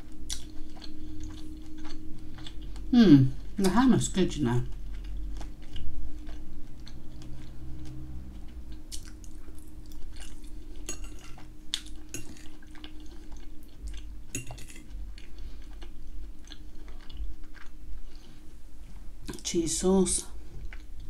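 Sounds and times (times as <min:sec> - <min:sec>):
mouth chewing wet smacks: 0:00.3 - 0:02.6, 0:04.8 - 0:17.8.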